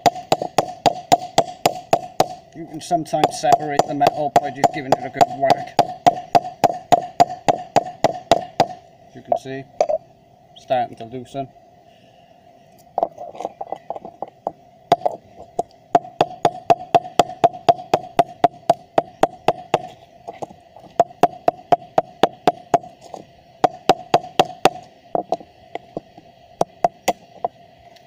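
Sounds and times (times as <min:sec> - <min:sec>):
hammer knocking on metal block: 0:00.0 - 0:02.4, 0:03.2 - 0:10.0, 0:16.0 - 0:19.9.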